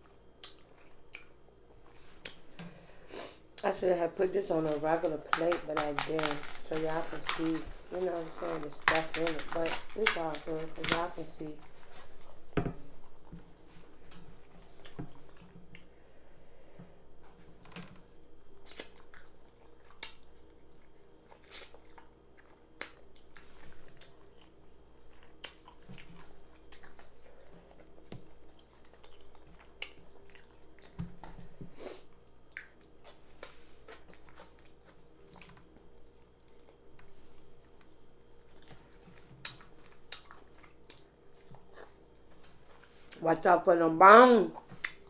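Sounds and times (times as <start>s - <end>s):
person chewing with wet mouth smacks: 0.4s - 1.4s, 18.6s - 24.5s, 25.1s - 31.0s, 32.5s - 42.4s, 44.6s - 45.0s.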